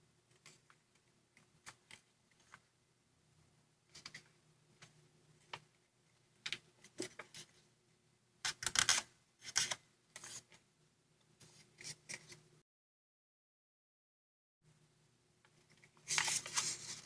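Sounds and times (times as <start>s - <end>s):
paper rustling and crinkling: 15.8s - 17.0s.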